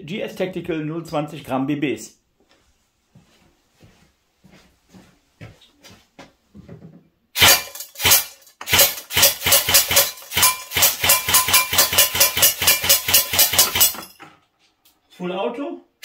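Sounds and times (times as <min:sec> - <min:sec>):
airsoft rifle firing: 0:07.4 - 0:14.1
pellets cracking into paper target: 0:07.4 - 0:14.2.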